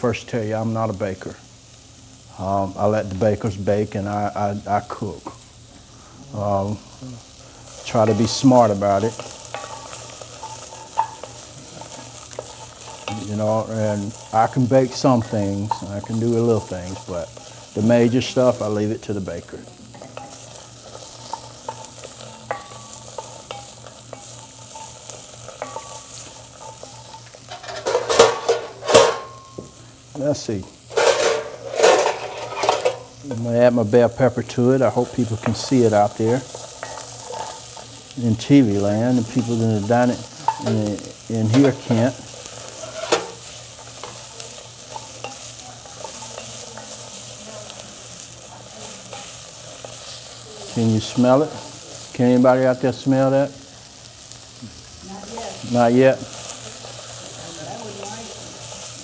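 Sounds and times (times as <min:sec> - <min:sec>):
vegetables sizzling in pot: 0:00.0 - 0:59.0
wooden spoon scraping pot: 0:31.0 - 0:33.1, 0:35.0 - 0:38.1, 0:38.7 - 0:47.1.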